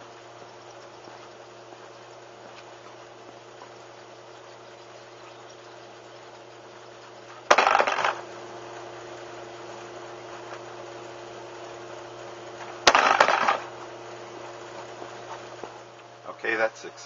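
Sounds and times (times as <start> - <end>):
plane landing gear clattering on concrete: 7.5 - 8.2.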